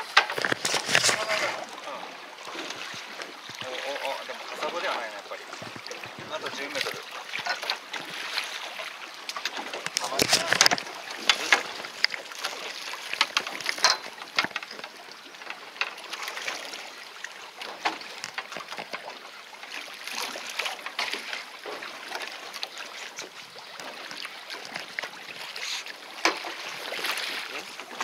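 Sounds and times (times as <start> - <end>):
water lapping against boat: 0.0 - 28.0
light clicks and knocks: 13.1 - 16.0.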